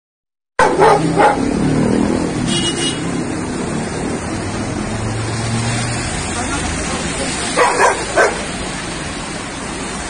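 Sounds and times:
dog barking: 0:00.6 - 0:01.5, 0:07.5 - 0:08.6
street traffic: 0:00.6 - 0:10.0.

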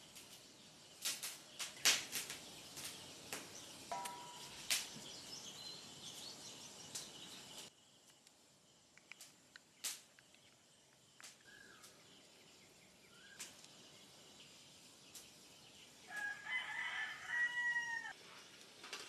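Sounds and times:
faint sharp clicks: 0:09.0 - 0:12.0, 0:13.3 - 0:13.8
rooster crowing: 0:16.1 - 0:18.2.

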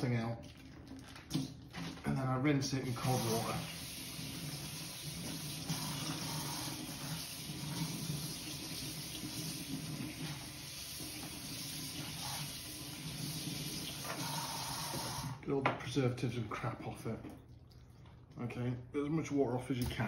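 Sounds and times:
water running from tap: 0:00.0 - 0:15.4.

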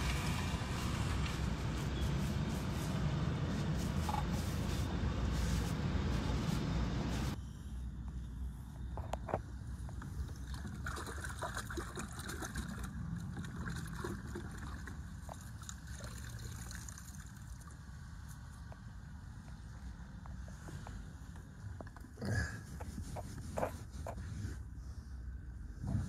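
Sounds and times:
water sloshing in bucket: 0:10.3 - 0:17.6
water splashes and drips: 0:10.3 - 0:18.0.

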